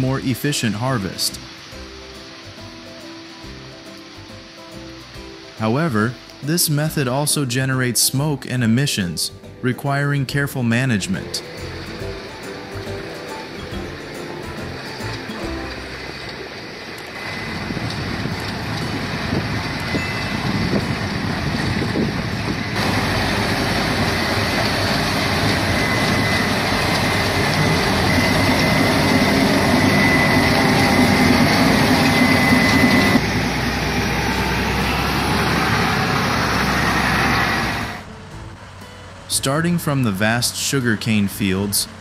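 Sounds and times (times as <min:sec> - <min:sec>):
diesel engines and machinery din: 0:10.6 - 0:42.0.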